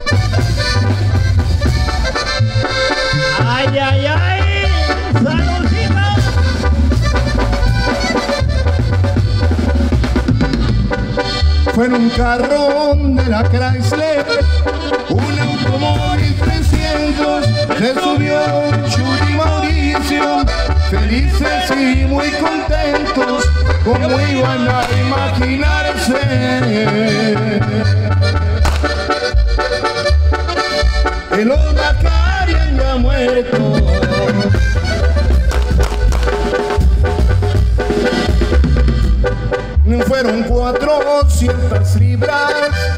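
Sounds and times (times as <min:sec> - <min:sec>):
bass drum pounding: 0:00.0 - 0:11.8, 0:15.1 - 0:17.7, 0:23.5 - 0:26.4, 0:28.4 - 0:30.4, 0:32.0 - 0:42.1
wind instruments melody: 0:00.0 - 0:42.9.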